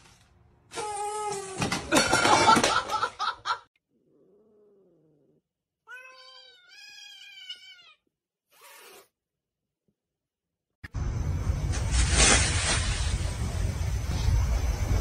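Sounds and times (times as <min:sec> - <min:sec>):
loud clatter and commotion: 0:01.6 - 0:03.1
cat yowling: 0:05.9 - 0:08.0.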